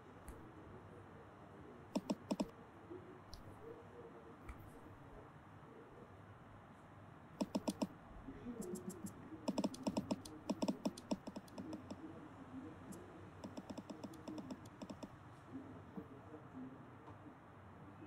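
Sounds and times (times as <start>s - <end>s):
touchscreen key clicks: 2.0s - 2.5s, 7.4s - 7.9s, 8.6s - 12.0s, 13.4s - 15.1s.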